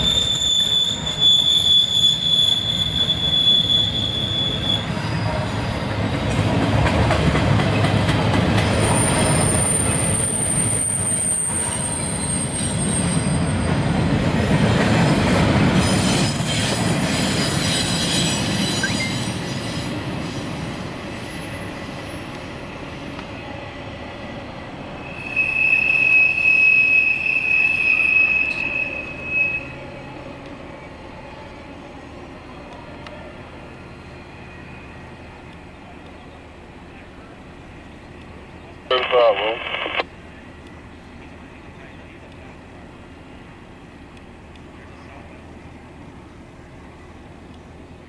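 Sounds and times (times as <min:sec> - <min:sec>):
high wheel squeal: 0:00.0 - 0:06.3, 0:08.6 - 0:13.7, 0:15.8 - 0:20.5, 0:25.0 - 0:30.0
low-pitched wheel squeal: 0:00.0 - 0:06.3, 0:08.7 - 0:13.7, 0:25.0 - 0:30.0
train wheels rumbling and clattering: 0:02.6 - 0:23.4.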